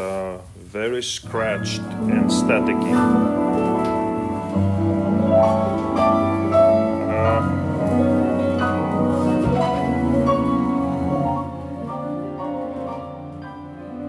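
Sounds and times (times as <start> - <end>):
vinyl crackle: 0.0 - 14.0
instrumental music from a record: 1.2 - 14.0.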